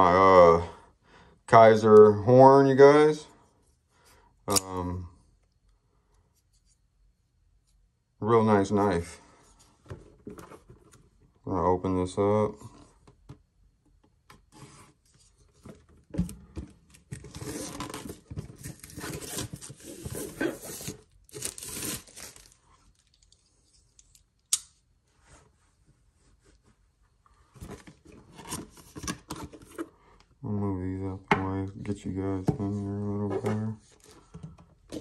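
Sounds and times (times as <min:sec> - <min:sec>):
packaging slitting and ripping: 0:17.2 - 0:22.6
plastic wrap crinkling: 0:20.6 - 0:23.1.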